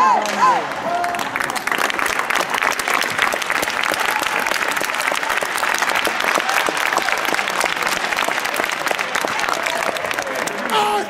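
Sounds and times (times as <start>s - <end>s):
crowd applauding: 0.2s - 11.0s.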